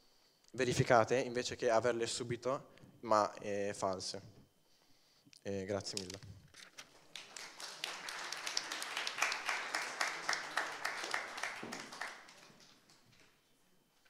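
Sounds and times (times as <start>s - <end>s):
audience applauding: 6.9s - 13.4s.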